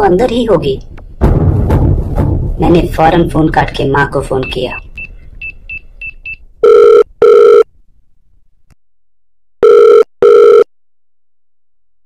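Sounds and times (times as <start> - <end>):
telephone ringing tone: 6.6 - 7.7, 9.6 - 10.7.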